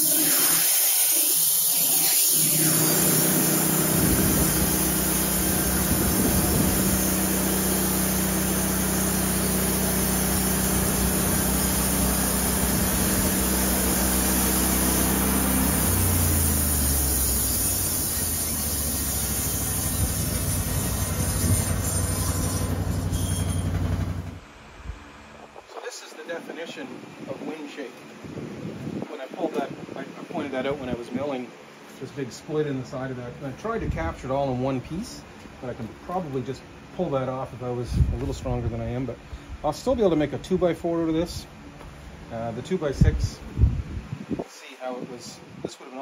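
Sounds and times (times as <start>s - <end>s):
band sawmill drone and hiss: 0.0s - 27.8s.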